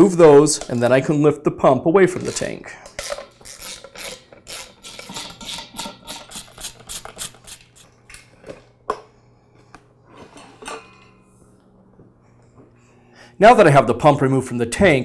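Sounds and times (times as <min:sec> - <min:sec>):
socket wrench ratcheting: 0:02.3 - 0:07.9.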